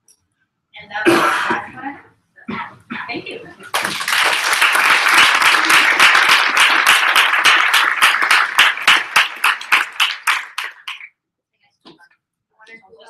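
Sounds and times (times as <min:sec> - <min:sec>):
audience applauding: 0:03.6 - 0:11.1.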